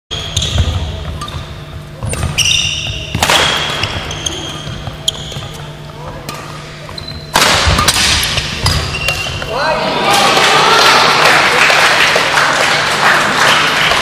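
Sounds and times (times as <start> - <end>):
shoes squeaking on floor: 0.1 - 6.2, 6.8 - 7.3, 8.6 - 9.5
rackets hitting shuttlecock: 2.0 - 9.5.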